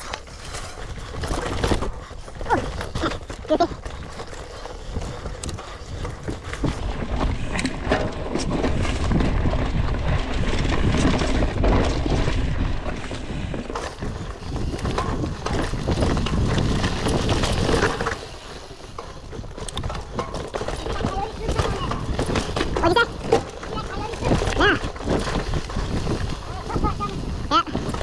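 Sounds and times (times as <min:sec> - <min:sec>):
bike clicks and knocks: 0:00.0 - 0:28.0
bike tyres rolling over rocks: 0:00.0 - 0:28.0
wind rumbling on microphone: 0:00.0 - 0:28.0.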